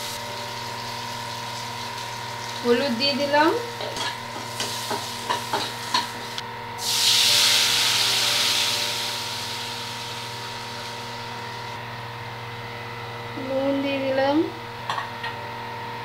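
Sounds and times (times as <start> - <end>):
liquid hitting hot oil sizzling: 0.0 - 2.8, 3.7 - 11.8.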